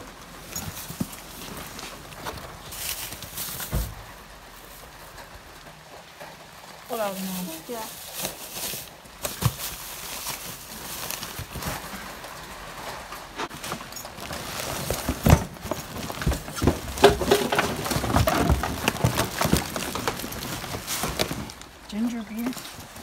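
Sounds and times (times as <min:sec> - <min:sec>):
cardboard boxes being shifted: 0:00.0 - 0:05.2, 0:06.9 - 0:23.0
knocks and thumps: 0:14.8 - 0:21.5.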